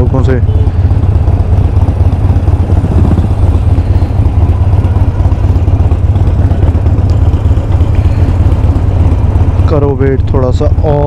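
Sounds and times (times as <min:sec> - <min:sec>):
motorcycle engine running: 0:00.0 - 0:11.0
wind rumble on microphone: 0:01.4 - 0:05.0.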